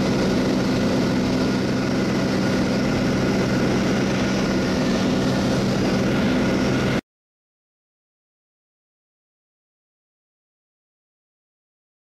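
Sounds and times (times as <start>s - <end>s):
aircraft engine drone: 0.0s - 7.0s.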